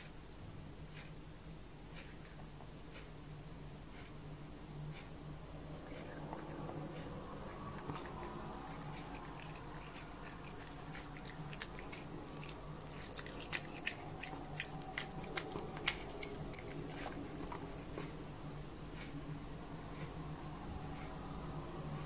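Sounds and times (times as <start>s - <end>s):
cat chewing food: 1.9s - 3.1s, 4.9s - 18.3s.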